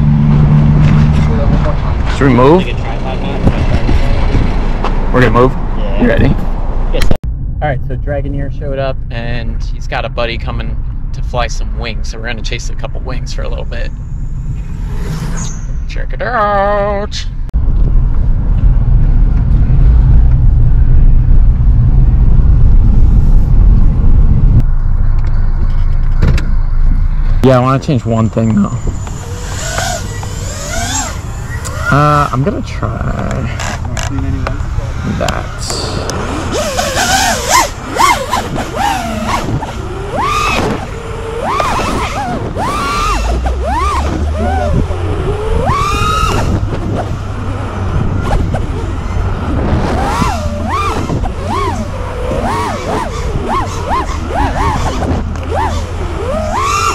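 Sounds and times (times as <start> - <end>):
car cabin road and engine rumble: 0.0 - 56.9
drone motors whining: 25.1 - 56.9.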